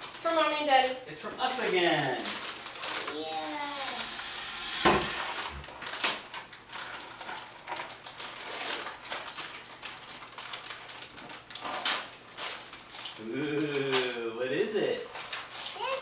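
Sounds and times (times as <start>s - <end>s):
wrapping paper crinkling and tearing: 0.0s - 3.7s, 6.7s - 14.0s
thump: 4.2s - 5.7s.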